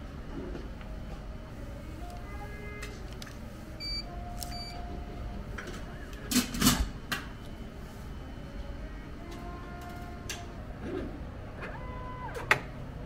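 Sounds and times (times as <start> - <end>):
steady low hum: 0.0 - 13.0
vending machine beeping: 3.7 - 6.0.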